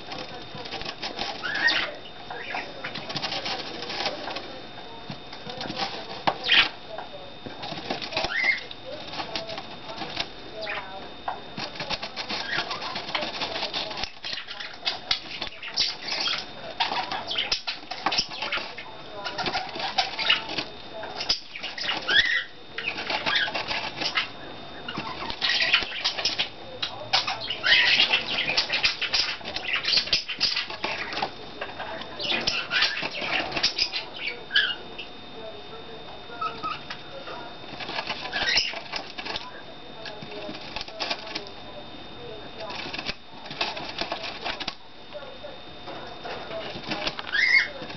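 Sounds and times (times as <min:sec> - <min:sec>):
bird pecking at styrofoam: 0:00.0 - 0:34.8, 0:36.0 - 0:47.9
bird chirps: 0:01.2 - 0:03.0, 0:14.0 - 0:20.6, 0:24.9 - 0:31.3, 0:32.2 - 0:35.1, 0:38.3 - 0:38.9, 0:47.2 - 0:47.8.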